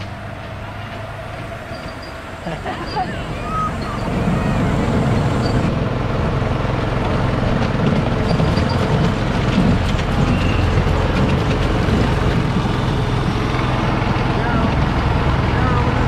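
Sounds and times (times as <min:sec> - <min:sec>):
train wheels clicking: 0:00.0 - 0:05.8, 0:06.9 - 0:15.3
miniature train rumbling: 0:00.0 - 0:16.0.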